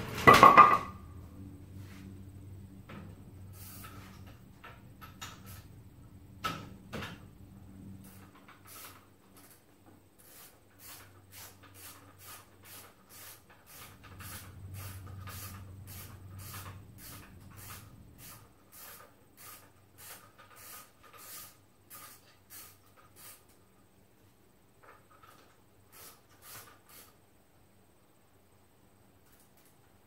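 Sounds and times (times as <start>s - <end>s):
low steady hum: 0.0s - 8.3s
hand tool scraping strokes: 10.2s - 23.5s.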